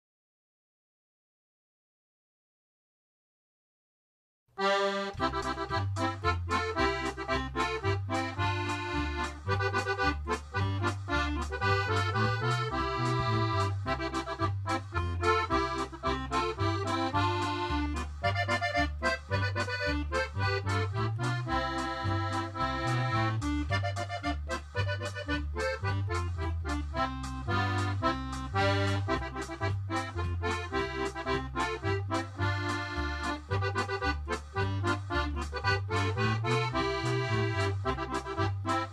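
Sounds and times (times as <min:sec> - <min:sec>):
instrumental music with steady beat: 0:04.6 - 0:38.9.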